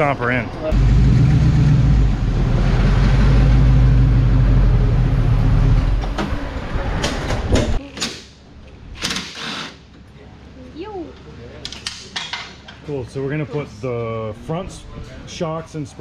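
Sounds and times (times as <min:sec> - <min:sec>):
vehicle engine rumbling: 0:00.7 - 0:07.8.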